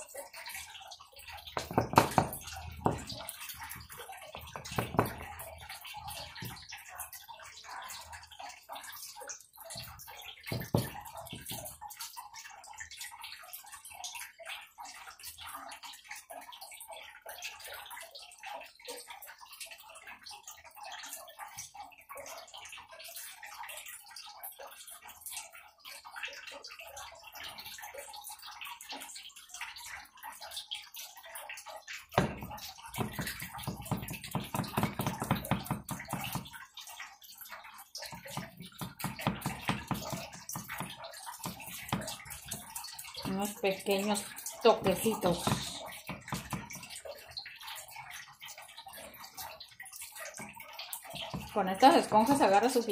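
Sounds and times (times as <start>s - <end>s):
foam brush dabbing wet paint: 32.2s - 36.5s, 38.1s - 46.8s.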